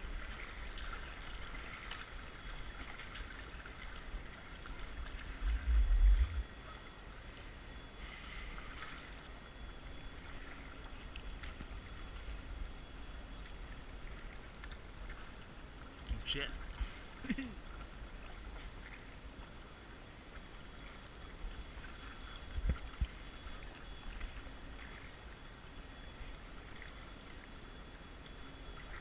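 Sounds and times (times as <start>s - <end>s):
water lapping around kayak: 0.0s - 29.0s
loud low rumble: 5.4s - 6.5s.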